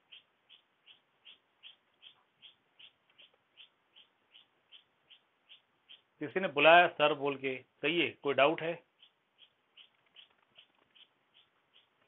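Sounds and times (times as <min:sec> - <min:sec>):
faint high-pitched chirps: 0:00.0 - 0:06.2, 0:08.8 - 0:12.0.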